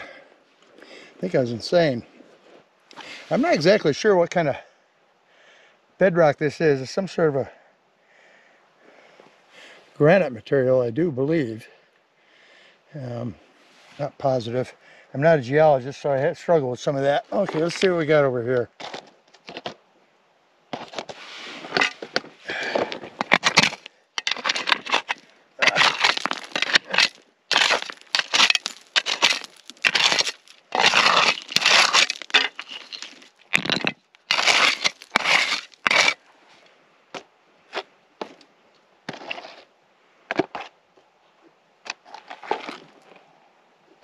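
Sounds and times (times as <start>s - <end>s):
digging tool crunching gravelly ground: 2.1s - 3.8s, 17.1s - 18.1s, 18.8s - 19.8s, 20.7s - 36.3s, 39.0s - 39.7s, 41.9s - 43.2s.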